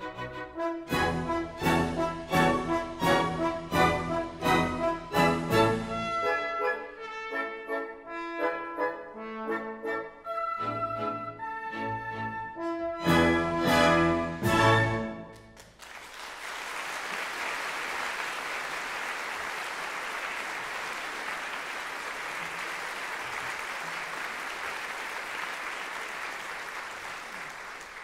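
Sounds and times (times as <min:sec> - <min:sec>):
orchestral music: 0:00.0 - 0:15.5
audience applauding: 0:15.3 - 0:28.0.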